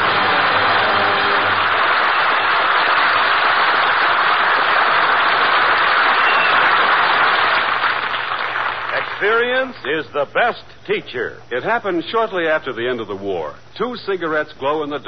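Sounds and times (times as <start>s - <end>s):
audience applauding: 0.0s - 9.5s.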